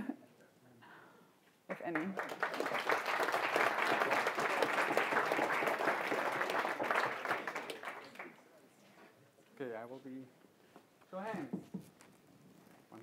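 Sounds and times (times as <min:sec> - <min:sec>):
audience applauding: 0:01.7 - 0:08.4.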